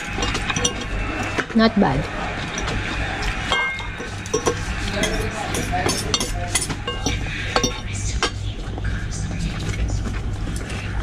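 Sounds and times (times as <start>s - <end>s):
forks clinking on plates: 0.0s - 8.4s
faint voices: 0.0s - 11.0s.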